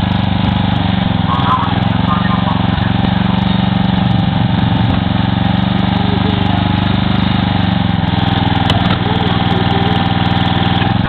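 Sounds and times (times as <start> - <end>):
small petrol engine running: 0.0 - 11.0.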